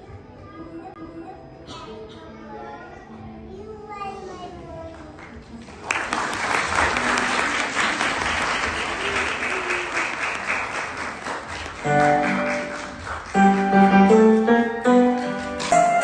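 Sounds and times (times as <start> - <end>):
audience applauding: 5.5 - 16.0
keyboard playing steady notes: 11.5 - 16.0.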